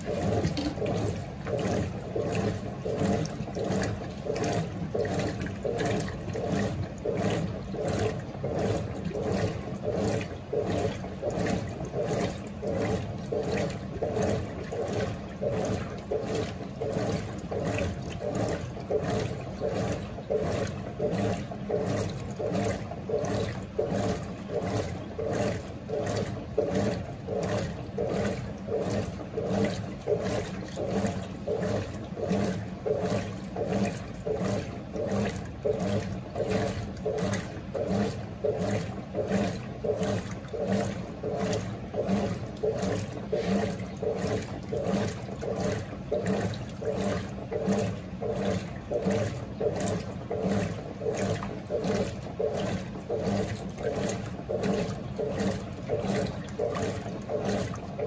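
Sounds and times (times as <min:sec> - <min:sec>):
washing machine water sloshing: 0:00.0 - 0:58.0.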